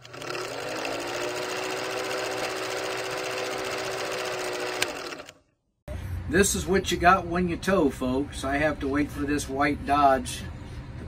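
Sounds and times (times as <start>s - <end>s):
film projector clatter: 0.0s - 5.4s.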